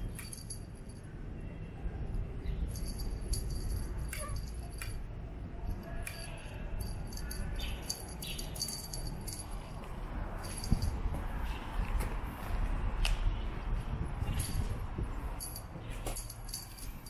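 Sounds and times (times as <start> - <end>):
small bell jingling: 0.0 - 1.1, 2.4 - 11.2, 14.2 - 17.0.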